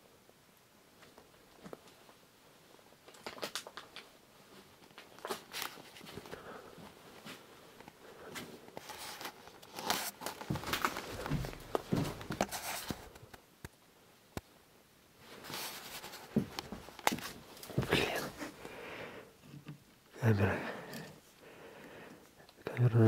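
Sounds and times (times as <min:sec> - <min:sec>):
rustling and handling noises: 0:00.9 - 0:14.6, 0:15.2 - 0:18.8.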